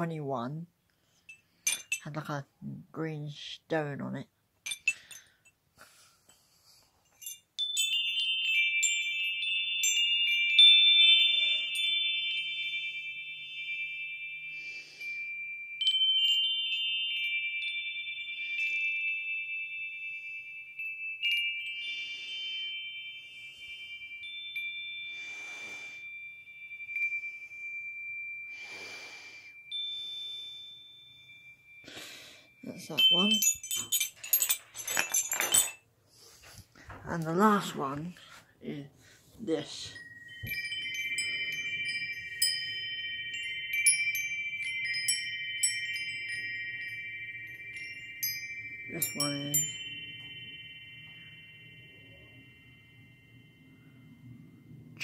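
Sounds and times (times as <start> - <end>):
wind chime ringing: 1.1 - 2.4, 4.6 - 5.6, 7.0 - 35.9, 39.4 - 55.0.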